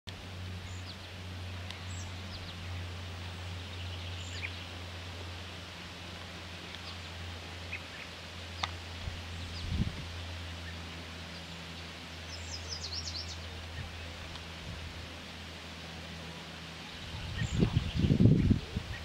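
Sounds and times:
low hum: 0:00.1 - 0:19.0
noisy wash: 0:00.1 - 0:19.0
bird chirps: 0:10.5 - 0:14.0.

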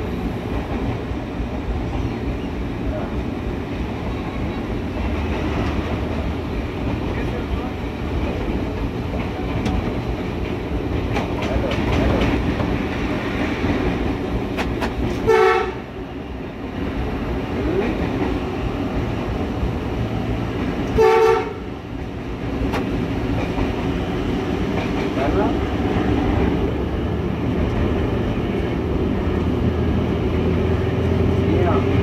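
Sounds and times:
diesel locomotive rumble: 0:00.0 - 0:32.0
locomotive horn blasts: 0:15.3 - 0:15.9, 0:21.0 - 0:21.7.

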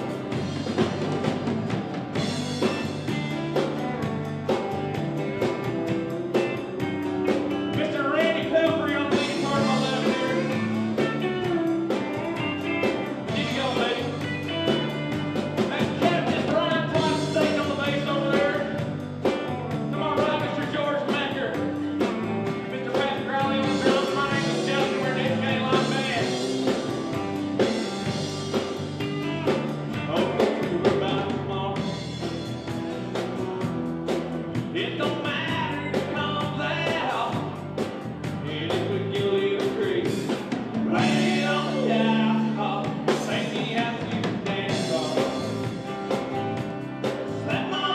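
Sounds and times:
live country band playing: 0:00.0 - 0:47.9
person singing: 0:07.3 - 0:21.9, 0:22.6 - 0:26.6, 0:29.9 - 0:32.0, 0:34.7 - 0:37.6, 0:38.4 - 0:46.2, 0:47.2 - 0:47.9.

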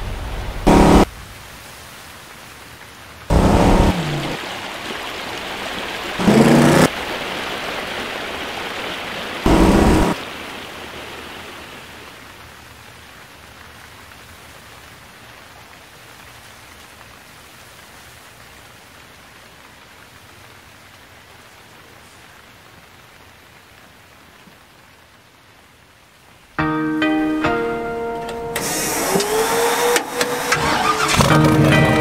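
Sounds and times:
stream rushing over rocks: 0:00.0 - 0:24.7
short loud pitched bursts: 0:00.7 - 0:01.1, 0:03.3 - 0:04.4, 0:06.2 - 0:06.9, 0:09.5 - 0:10.2.

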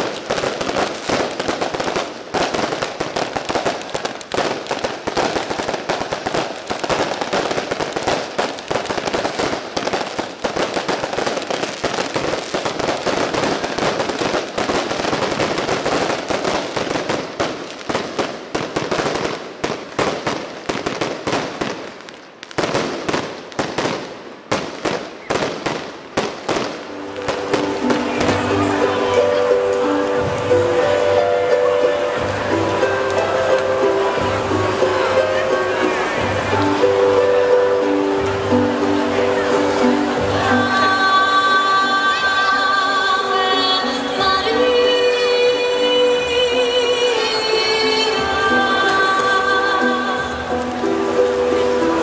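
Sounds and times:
fireworks bangs and crackles: 0:00.0 - 0:40.3.

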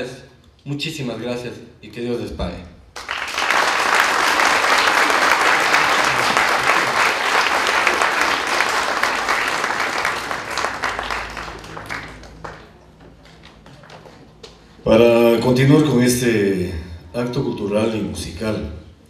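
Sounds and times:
audience applauding: 0:03.0 - 0:14.4.

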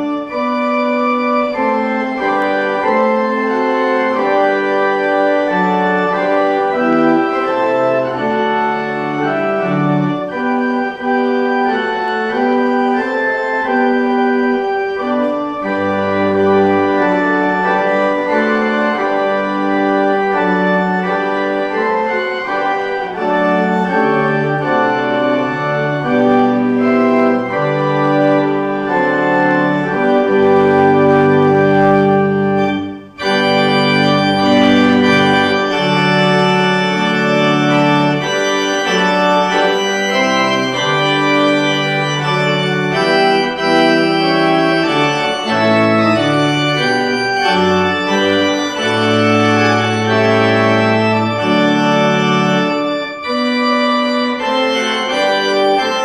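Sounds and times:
church organ playing chords: 0:00.0 - 0:56.0.

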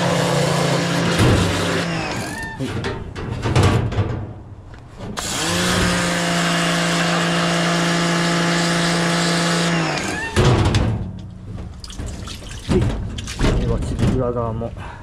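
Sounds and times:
pressure washer motor hum: 0:00.0 - 0:02.4, 0:05.2 - 0:10.4.

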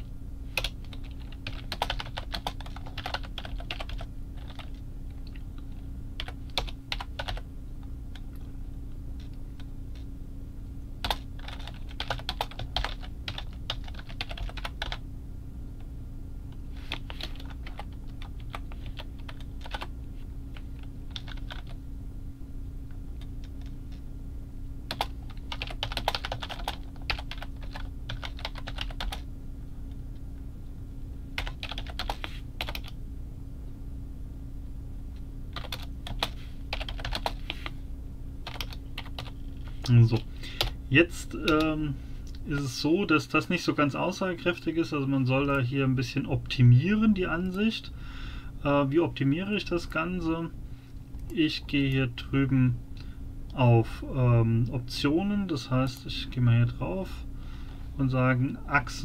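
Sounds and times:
steady low hum: 0:00.0 - 0:59.0
typing on computer keyboard: 0:00.6 - 0:04.7, 0:06.2 - 0:07.4, 0:11.0 - 0:15.0, 0:17.0 - 0:19.9, 0:21.1 - 0:21.7, 0:24.9 - 0:29.2, 0:31.4 - 0:32.9, 0:35.6 - 0:37.6, 0:38.4 - 0:39.3.

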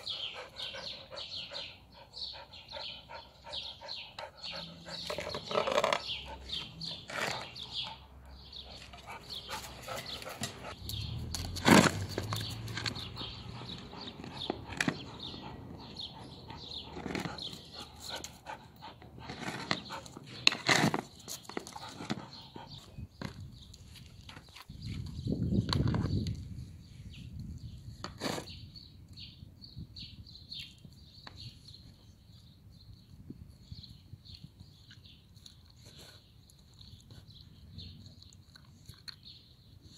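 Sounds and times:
birds chirping: 0:00.0 - 0:39.9
dog licking and chewing: 0:34.3 - 0:39.9.

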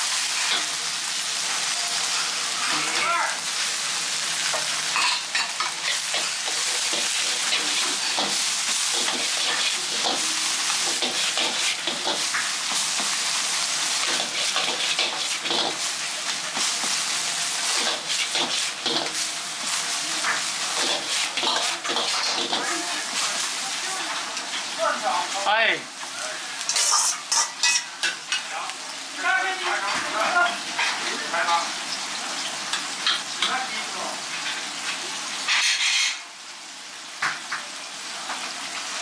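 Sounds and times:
rice sizzling in a wok: 0:00.0 - 0:39.0
metal ladle scraping a wok: 0:05.0 - 0:08.4, 0:20.8 - 0:22.8, 0:26.7 - 0:28.0, 0:35.5 - 0:36.2.

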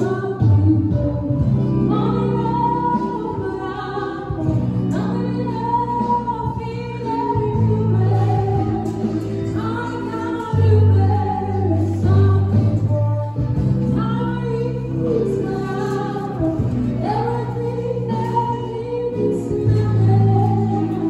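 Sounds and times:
woman singing through microphone: 0:00.0 - 0:21.0.

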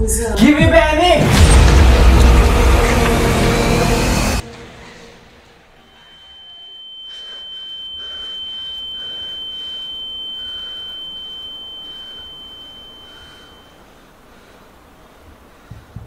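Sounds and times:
high-pitched steady tone: 0:05.7 - 0:14.5.

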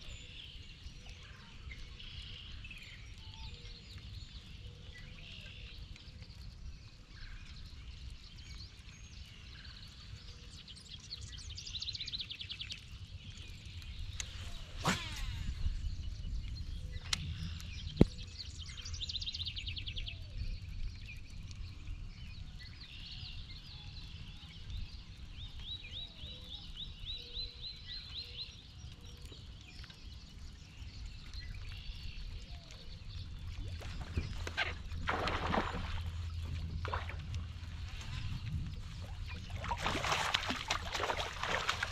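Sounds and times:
wild birds calling and singing: 0:00.0 - 0:41.9
low steady rumble: 0:33.0 - 0:41.9.

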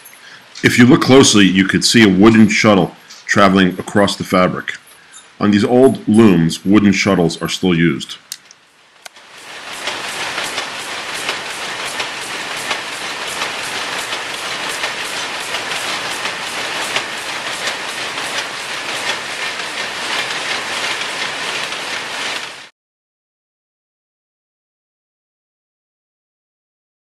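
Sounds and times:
shuttle loom clattering: 0:00.0 - 0:07.6, 0:09.1 - 0:22.7
machine rattle: 0:09.1 - 0:22.7.

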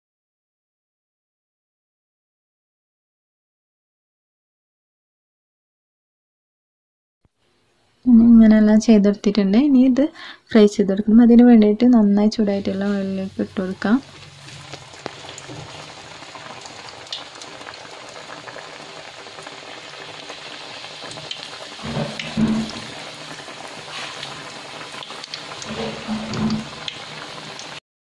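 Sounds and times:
deep-frying sizzle with crackles: 0:12.7 - 0:27.8.

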